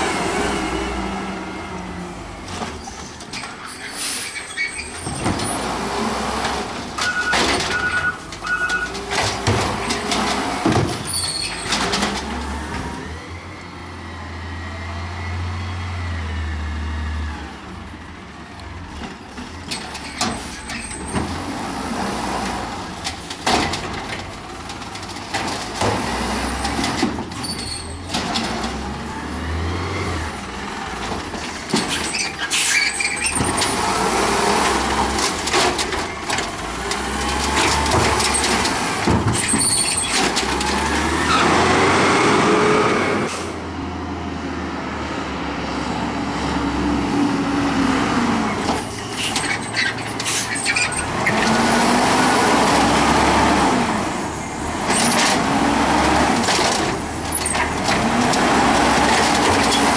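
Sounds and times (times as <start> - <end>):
truck engine revving: 0.0 - 2.5, 28.2 - 32.2, 33.0 - 49.4, 50.2 - 59.9
air brake hisses: 3.7 - 4.4
bangs of carts and arm: 6.3 - 13.0, 22.4 - 28.9, 30.4 - 41.8.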